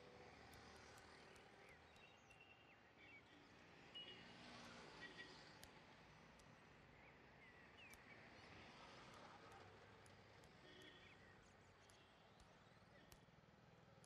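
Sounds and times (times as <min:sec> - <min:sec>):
light ticks: 0:00.3 - 0:02.5, 0:05.5 - 0:06.8, 0:07.4 - 0:14.0.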